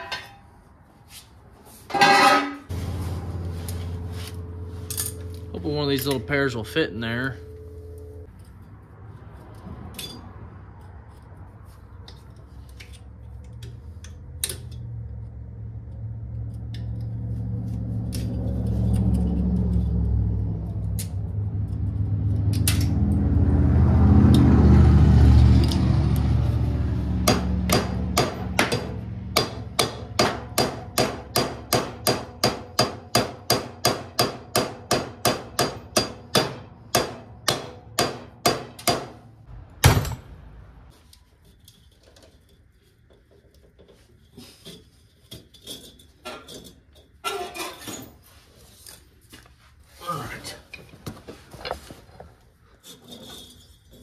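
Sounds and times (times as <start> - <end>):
hammer striking metal pulley: 27.2 - 39.2.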